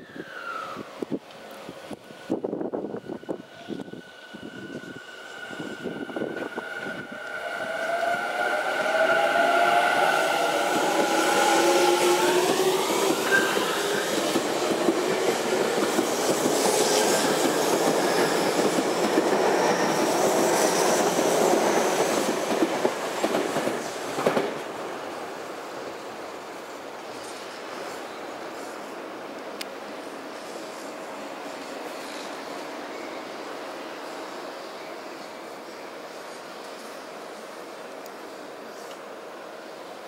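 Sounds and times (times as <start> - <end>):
electric train motor whine: 3.1 - 14.1.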